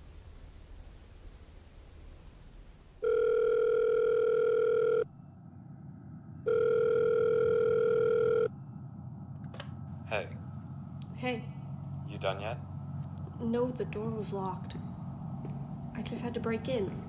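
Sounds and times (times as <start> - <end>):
telephone ringback tone: 3.0 - 5.1, 6.5 - 8.5.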